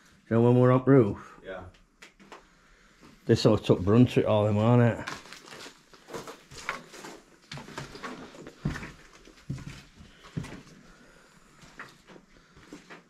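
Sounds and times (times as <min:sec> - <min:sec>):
footsteps crunching on debris: 0:05.0 - 0:11.0.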